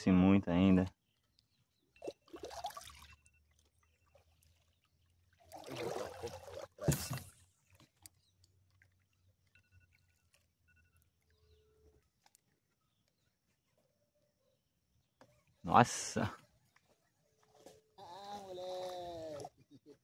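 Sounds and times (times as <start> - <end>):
kayak paddle splashing: 2.0 - 10.6.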